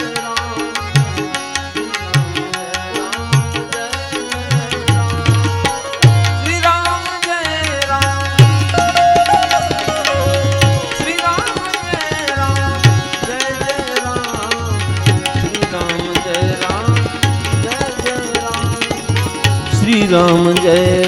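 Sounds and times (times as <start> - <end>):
tabla strokes: 3.3 - 21.0
melodic instrument playing tune: 8.4 - 13.4.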